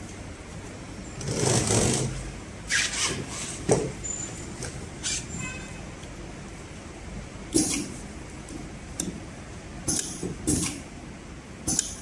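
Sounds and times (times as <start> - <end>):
sharp click: 9.9 - 10.8, 11.7 - 12.0.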